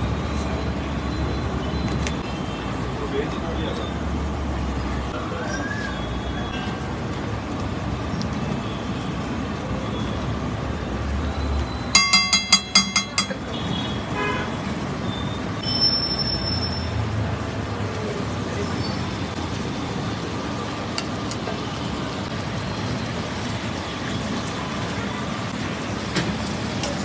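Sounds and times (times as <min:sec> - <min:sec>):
street traffic: 0:00.0 - 0:27.0
vehicle horn tooting: 0:13.4 - 0:14.6.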